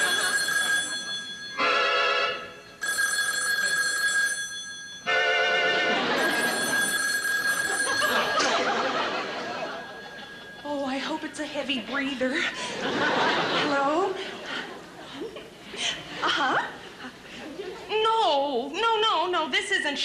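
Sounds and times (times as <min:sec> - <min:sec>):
audience laughter: 0:00.0 - 0:00.4, 0:05.7 - 0:06.8, 0:07.9 - 0:10.6, 0:12.4 - 0:17.9
telephone bell ringing: 0:00.0 - 0:10.7.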